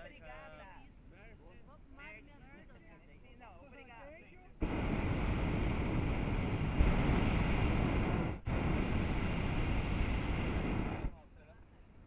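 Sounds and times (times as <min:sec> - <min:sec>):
propane burner blasting: 0:04.6 - 0:11.2.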